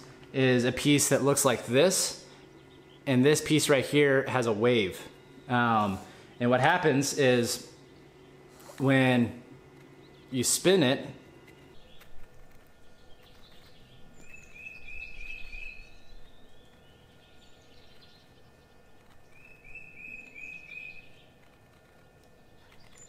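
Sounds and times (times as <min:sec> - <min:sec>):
bird whistling song: 0:12.9 - 0:21.3.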